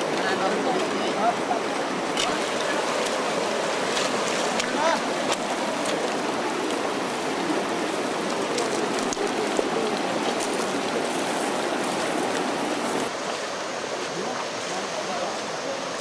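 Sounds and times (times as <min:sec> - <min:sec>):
shallow rocky stream rushing: 0:00.0 - 0:16.0
water dripping onto stones: 0:02.2 - 0:13.1.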